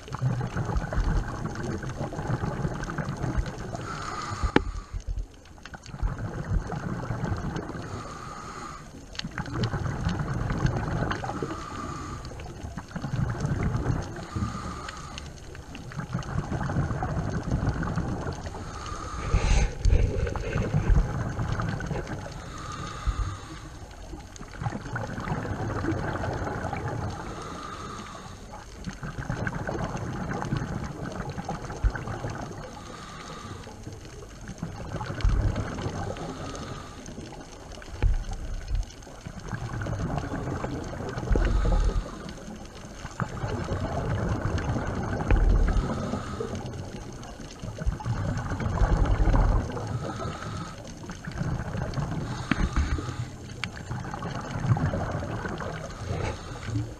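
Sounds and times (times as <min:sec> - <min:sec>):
exhaled bubbles gurgling: 0:00.0 - 0:56.9
regulator inhale hiss: 0:03.7 - 0:05.2, 0:07.8 - 0:09.1, 0:11.2 - 0:12.6, 0:14.2 - 0:15.6, 0:18.5 - 0:21.0, 0:21.6 - 0:24.2, 0:27.1 - 0:28.8, 0:32.5 - 0:34.0, 0:36.0 - 0:37.9, 0:41.2 - 0:42.8, 0:45.6 - 0:47.5, 0:49.7 - 0:51.1, 0:52.2 - 0:53.8, 0:55.6 - 0:56.9.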